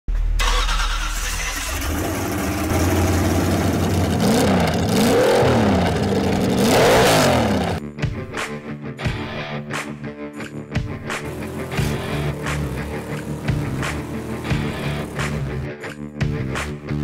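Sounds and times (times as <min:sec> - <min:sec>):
car engine revving: 0:00.4 - 0:07.8, 0:11.1 - 0:15.7.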